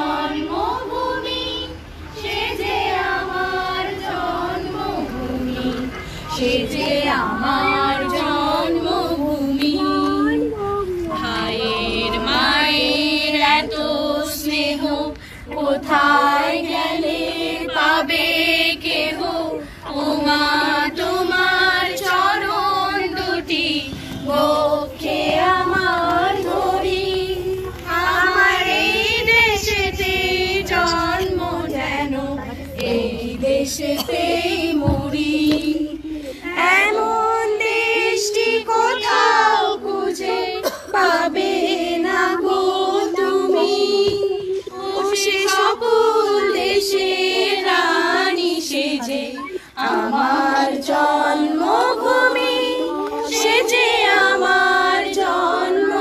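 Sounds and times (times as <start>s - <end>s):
group of adults singing in unison: 0.0s - 56.0s.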